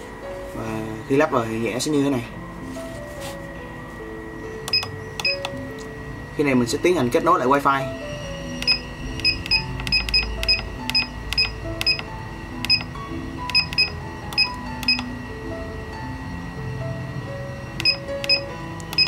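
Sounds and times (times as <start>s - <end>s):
soft background music: 0.0s - 19.0s
keypad clicks with beeps: 4.6s - 5.9s, 8.6s - 15.1s, 17.8s - 19.0s.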